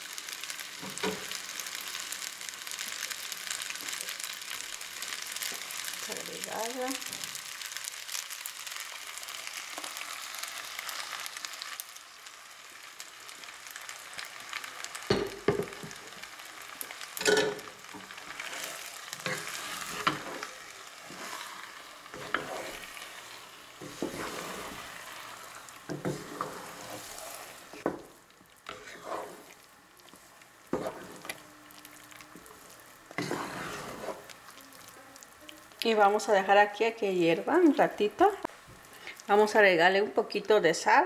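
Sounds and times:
sauce sizzling in a pan: 0:00.0 - 0:40.1
wooden spoon scraping pasta: 0:17.8 - 0:27.9, 0:28.6 - 0:35.0.

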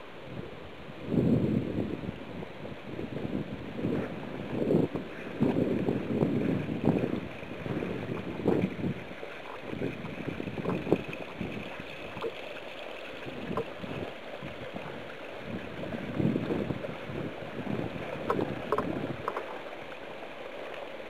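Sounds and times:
wind rumble on microphone: 0:00.0 - 0:20.0
water trickling over stones: 0:04.9 - 0:21.0.

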